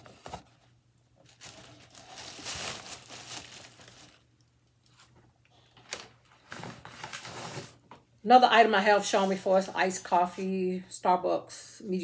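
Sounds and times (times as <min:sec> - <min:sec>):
packaging crinkling and rustling: 0:00.0 - 0:07.8.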